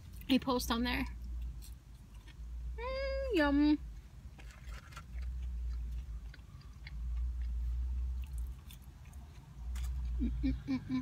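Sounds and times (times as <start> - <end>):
person chewing fries: 1.2 - 2.6, 4.2 - 10.8.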